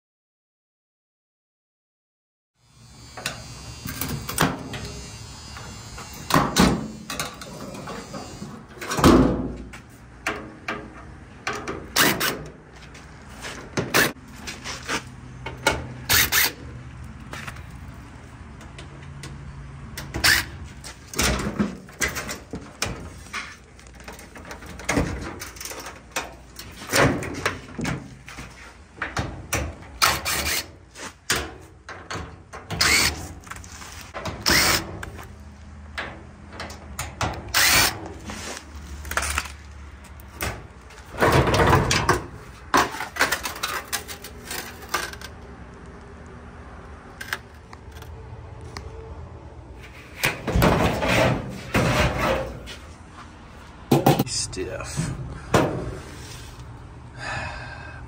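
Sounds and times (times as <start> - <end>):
cordless impact driver: 11.9 - 12.5, 16.0 - 16.6, 30.0 - 30.7, 32.7 - 33.3, 34.4 - 35.2, 37.4 - 38.2
sheet metal knocks and rattles: 50.3 - 52.6.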